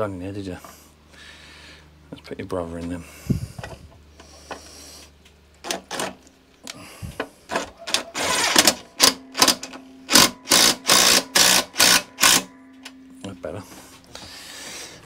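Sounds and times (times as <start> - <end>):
impact driver running a bolt: 7.2 - 12.5.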